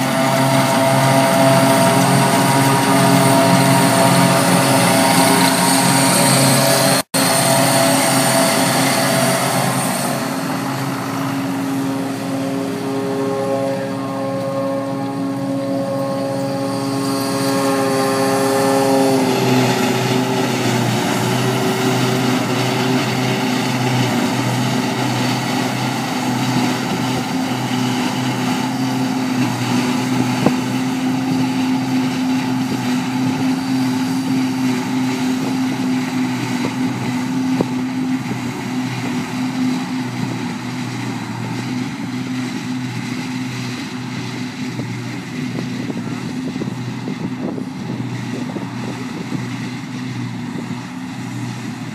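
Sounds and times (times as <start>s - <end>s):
forage harvester droning: 0.0s - 51.9s
tractor engine running: 0.0s - 51.9s.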